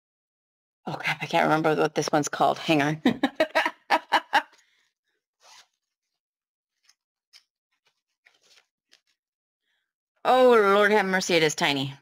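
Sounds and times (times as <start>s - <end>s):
faint packaging rustles: 7.7s - 9.2s.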